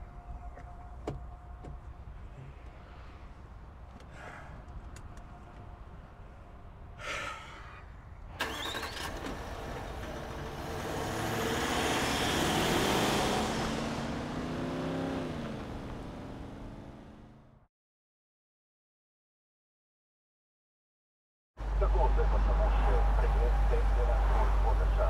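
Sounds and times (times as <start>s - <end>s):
car driving past: 9.8s - 17.4s.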